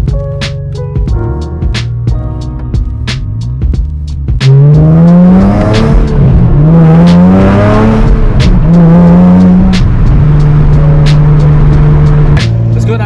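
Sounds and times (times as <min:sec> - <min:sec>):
car engine accelerating: 0:02.8 - 0:13.0.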